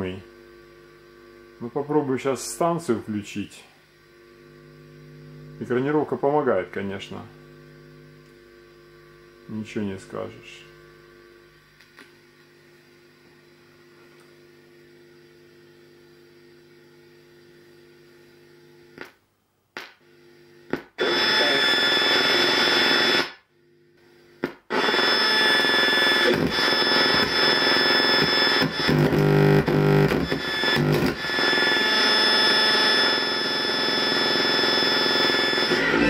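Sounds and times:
faint mains hum: 0.0s - 36.0s
radio music through speakers: 1.6s - 3.8s, 4.4s - 8.1s, 9.4s - 10.9s, 20.7s - 23.2s, 24.7s - 36.0s.

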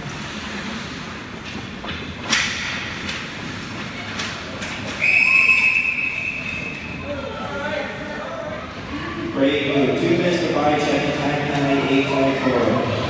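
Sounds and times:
hockey sticks and puck clacking: 1.4s - 5.1s
referee whistle blast: 5.0s - 6.9s.

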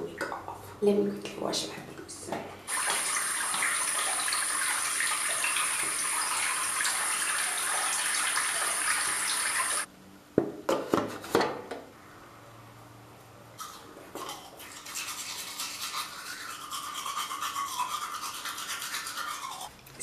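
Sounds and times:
sink tap running: 2.7s - 9.9s.

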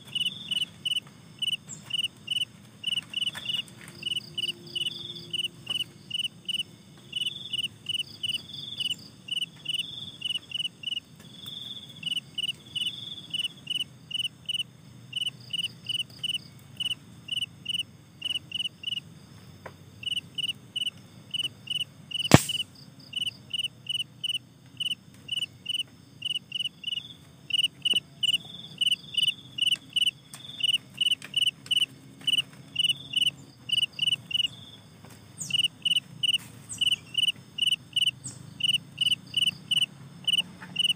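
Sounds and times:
crickets chirping: 0.0s - 40.9s
sharp snap: 22.2s - 22.7s.

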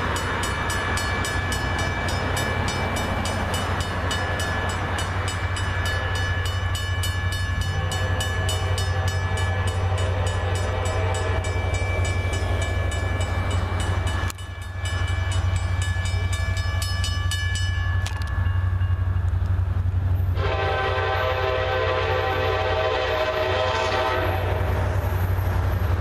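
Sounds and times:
crossing bell ringing: 0.0s - 19.7s
locomotive horn chord: 7.6s - 11.4s, 20.4s - 24.8s.

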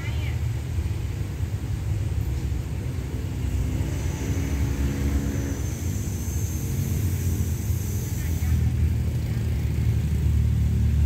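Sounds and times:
low engine rumble: 0.0s - 11.0s.

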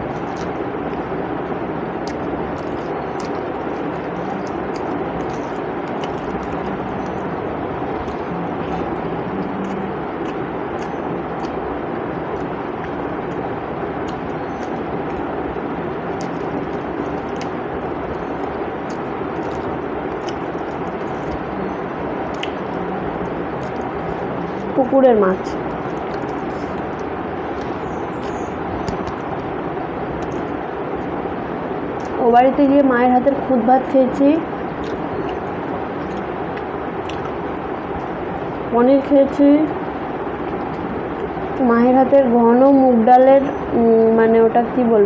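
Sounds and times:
chewing: 0.0s - 1.1s, 2.0s - 11.6s, 12.2s - 15.3s, 16.1s - 24.8s, 25.5s - 29.5s, 30.2s - 31.1s, 34.8s - 37.4s
eating clicks and smacks: 0.0s - 1.1s, 2.0s - 24.8s, 25.5s - 31.2s, 31.9s - 32.2s, 34.7s - 38.6s, 40.4s - 41.4s
steady background noise: 0.0s - 45.0s.

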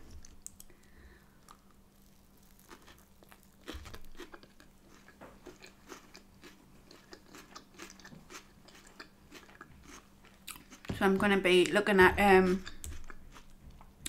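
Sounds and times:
crunching breaded food: 0.1s - 10.9s.

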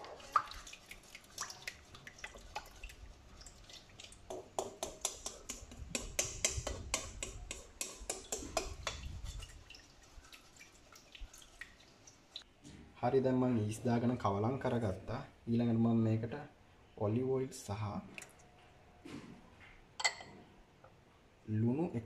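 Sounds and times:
light liquid sloshing: 0.0s - 12.9s
spatula clicking in bowl: 4.6s - 9.1s.

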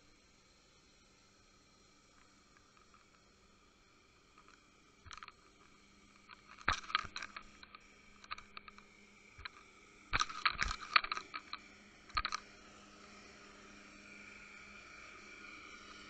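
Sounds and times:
underwater clicks and knocks: 6.2s - 8.8s, 10.2s - 12.4s.

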